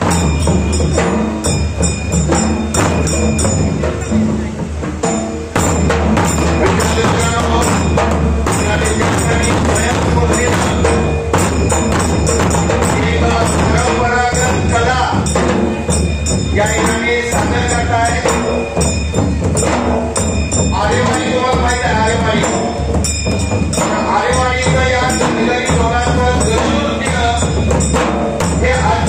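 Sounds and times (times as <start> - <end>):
dhol drums beaten with sticks: 0.0 - 29.0
metallic jingle: 0.0 - 29.0
person speaking over drumming: 6.3 - 15.8, 23.7 - 29.0.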